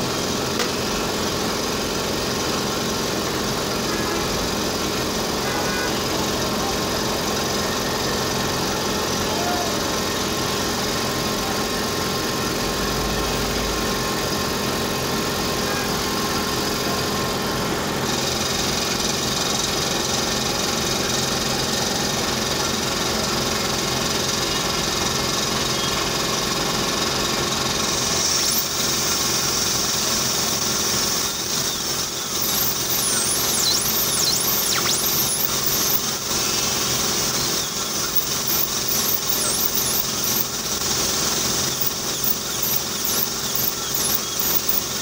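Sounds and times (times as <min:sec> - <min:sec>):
dental equipment hum: 0:00.0 - 0:45.0
dental drill whine: 0:18.0 - 0:45.0.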